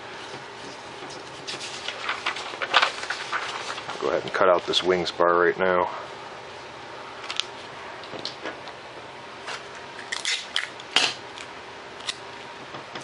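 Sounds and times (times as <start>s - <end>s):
paper rustling: 0.2s - 4.4s.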